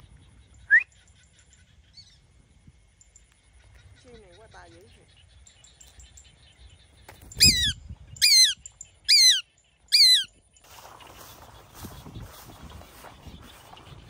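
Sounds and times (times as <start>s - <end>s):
bird shrill cries: 7.2s - 10.4s.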